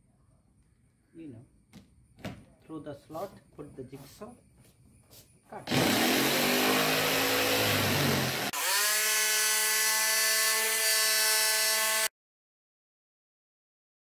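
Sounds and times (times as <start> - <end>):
steady motor whine: 5.7 - 10.7
jigsaw cutting plastic pipe: 5.7 - 12.1.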